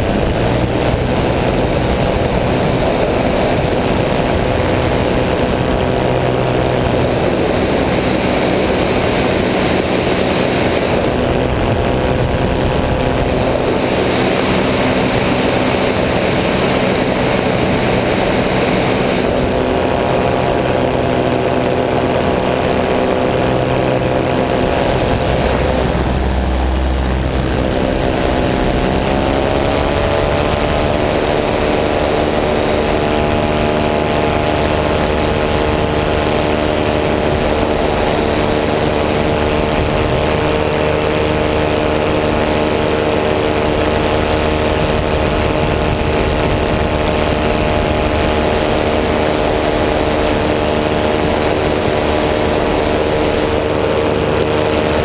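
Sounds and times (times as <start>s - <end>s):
low rumble: 0.0s - 9.0s, 19.3s - 40.5s
wind rushing: 0.0s - 53.0s
propeller aircraft engine: 0.0s - 55.0s.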